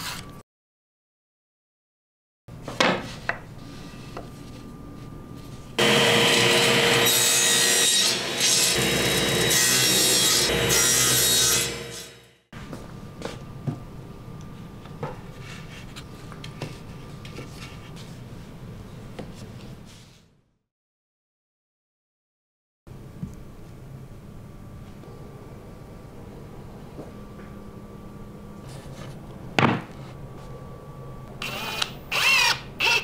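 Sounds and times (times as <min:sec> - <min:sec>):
table saw blade whine: 0:05.8 - 0:12.3.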